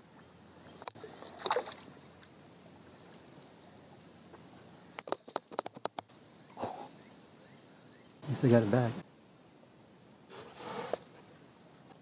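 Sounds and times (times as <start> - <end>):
high insect trill: 0.0 - 12.0
water sloshing around wading legs: 0.9 - 2.3.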